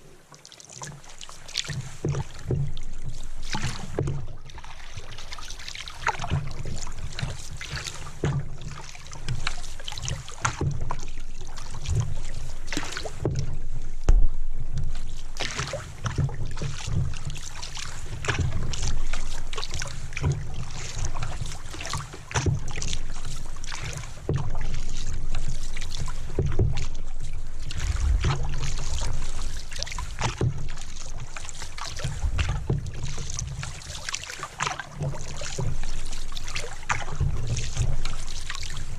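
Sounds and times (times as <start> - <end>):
paddle water splashing: 0.0 - 38.9
knocks through the boat: 1.7 - 5.4, 6.0 - 38.9
throbbing rumble: 13.2 - 15.4, 26.2 - 31.4.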